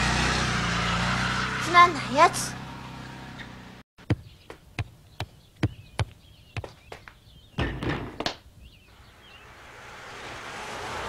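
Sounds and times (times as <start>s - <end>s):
basketball bouncing on pavement: 4.0s - 8.4s.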